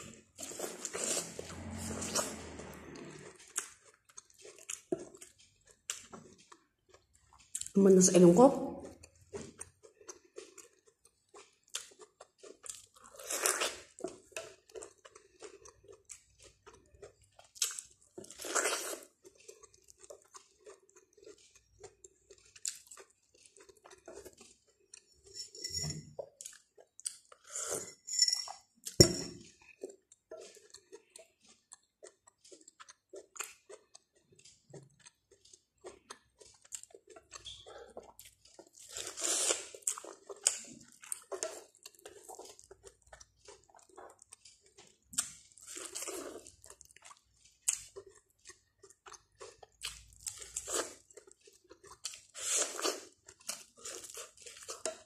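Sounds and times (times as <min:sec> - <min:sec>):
chewing corn on the cob: 0:00.0 - 0:25.4, 0:26.1 - 0:27.6, 0:28.7 - 0:55.0.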